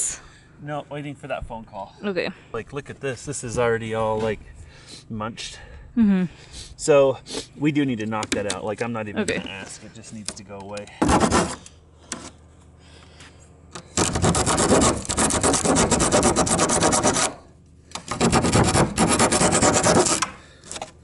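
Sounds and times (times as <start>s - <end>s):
hand saw cutting plywood: 11.0s - 12.3s, 14.0s - 17.4s, 18.0s - 20.9s.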